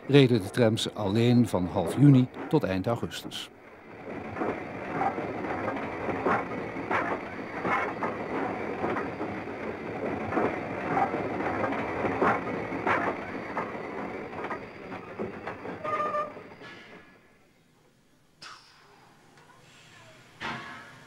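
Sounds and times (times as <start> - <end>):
tram rattling on track: 0.0 - 17.5, 20.2 - 21.0
rhythmic knocks of wheels: 1.5 - 17.2.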